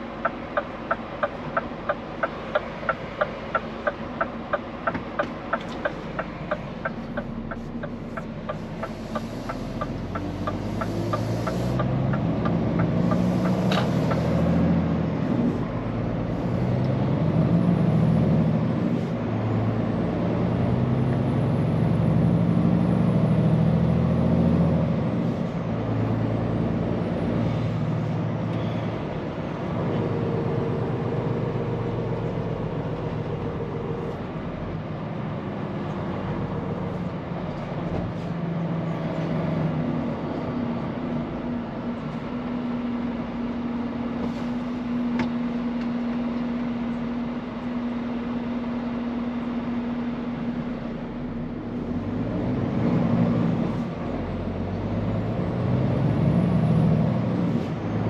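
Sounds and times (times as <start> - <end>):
turn signal ticking: 0.0 - 14.6
diesel truck engine accelerating: 0.0 - 58.0.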